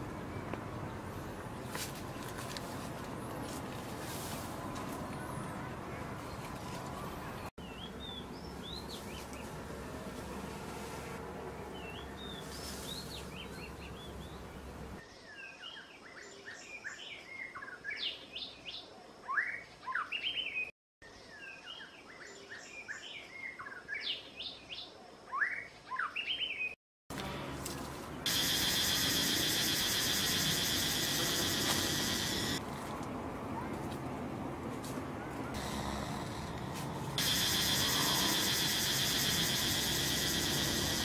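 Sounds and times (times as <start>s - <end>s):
songbirds chirping and whistling: 11.7s - 26.8s
high-pitched buzzing hiss: 28.3s - 32.6s, 37.2s - 41.0s.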